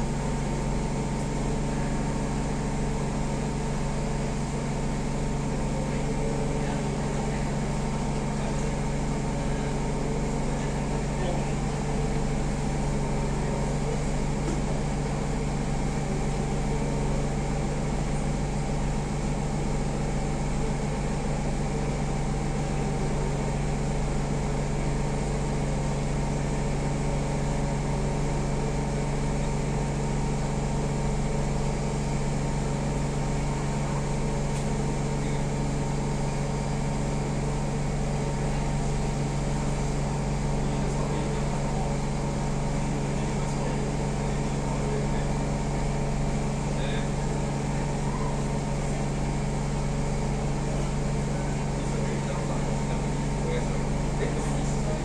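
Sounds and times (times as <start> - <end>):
train air conditioning hum: 0.0 - 55.0.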